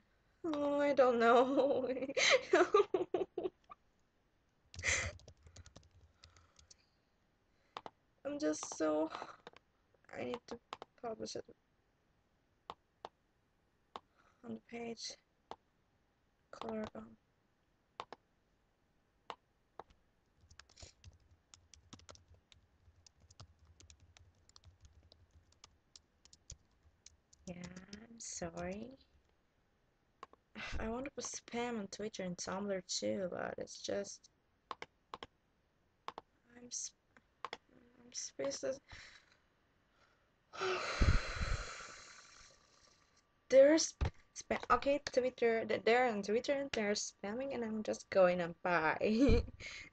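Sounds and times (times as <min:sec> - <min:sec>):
keyboard or mouse clicks: 0:08.6 - 0:08.8, 0:09.4 - 0:09.6, 0:10.2 - 0:10.9, 0:16.6 - 0:17.0, 0:18.0 - 0:18.2, 0:19.3 - 0:28.9, 0:34.7 - 0:35.3, 0:37.4 - 0:37.6
burst of breath: 0:40.0 - 0:42.8.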